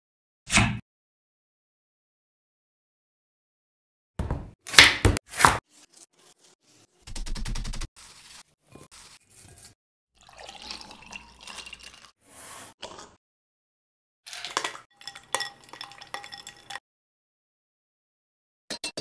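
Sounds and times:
wet kitchen sounds: 8.4 - 13.2, 14.3 - 16.8
spoon clinking ice in glass bowl: 14.3 - 16.8.

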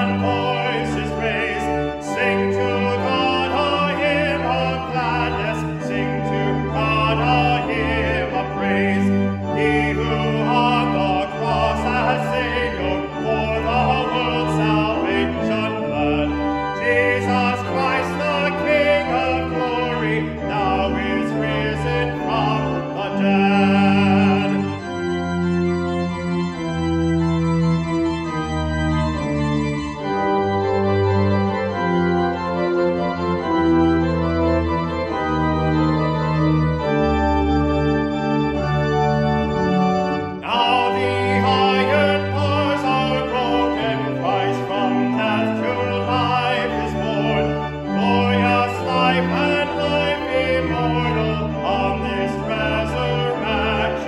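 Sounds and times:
man singing a hymn: 0.0 - 25.2, 40.4 - 54.0
organ playing chords: 0.0 - 54.0.

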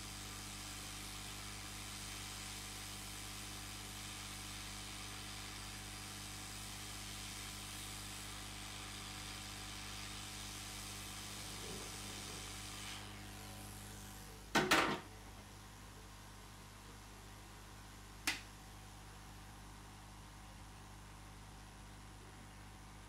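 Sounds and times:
hot air station hissing: 1.8 - 14.4.

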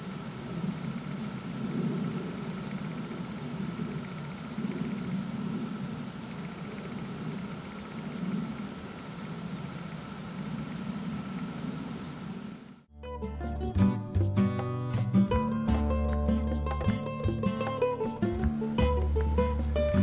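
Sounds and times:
faint high chirp: 0.0 - 12.9.

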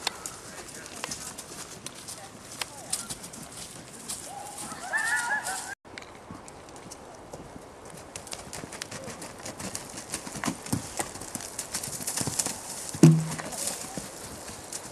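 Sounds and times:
horse hoofbeats: 0.0 - 14.9
loud thump: 13.0 - 13.6.

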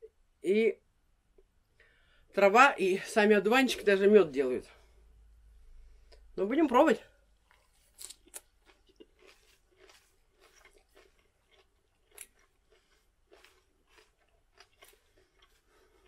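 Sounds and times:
person chewing crunchy salad: 7.4 - 16.0.

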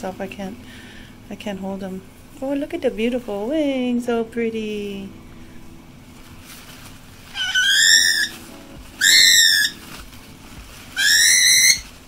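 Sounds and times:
cockatiel screeching: 7.3 - 8.4, 9.0 - 9.9, 10.9 - 12.0.

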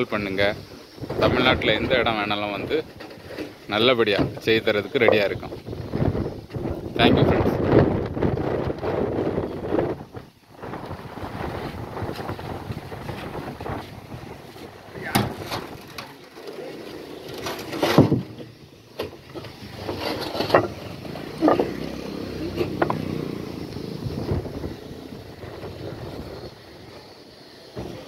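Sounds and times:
workers' voices: 0.0 - 5.7, 13.8 - 23.8
stone slabs clacking: 4.1 - 5.5, 17.3 - 21.8, 22.6 - 23.0.

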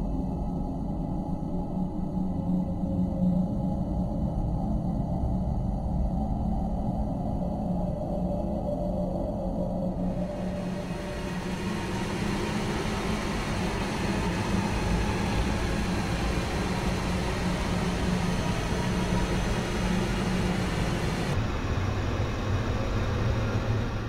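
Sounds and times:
low rumbling drone: 8.6 - 24.0.

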